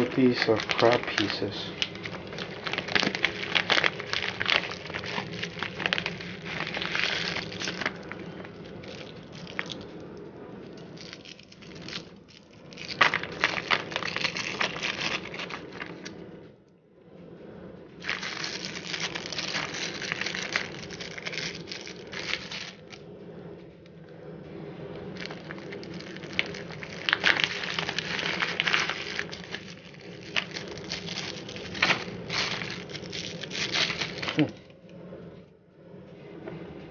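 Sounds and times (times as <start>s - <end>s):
plastic wrappers crinkling: 0.0s - 9.9s, 11.0s - 16.2s, 18.0s - 23.0s, 25.2s - 34.6s.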